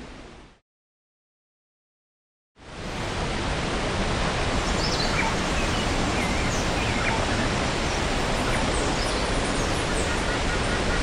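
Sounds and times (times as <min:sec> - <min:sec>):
waterfall rushing: 0:02.6 - 0:11.0.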